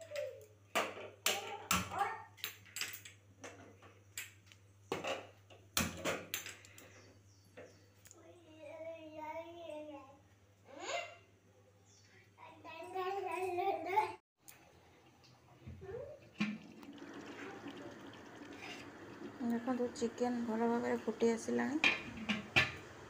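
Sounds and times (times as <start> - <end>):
metal pot clicks and knocks: 21.7 - 22.8.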